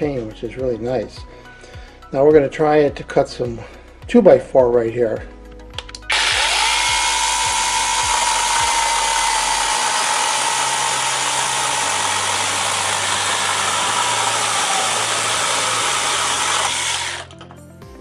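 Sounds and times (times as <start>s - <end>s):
chainsaw cutting wood: 6.0s - 17.4s.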